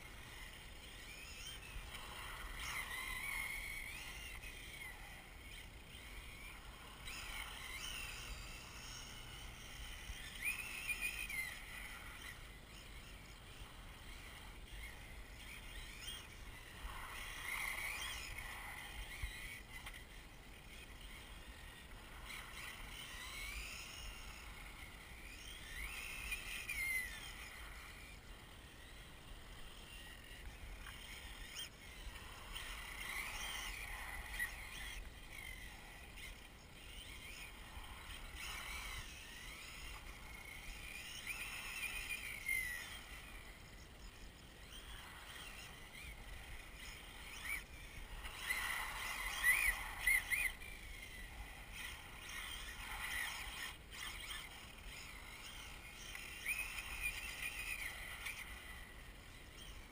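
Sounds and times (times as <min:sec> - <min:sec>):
electric motor whine: 0:00.0 - 0:59.9.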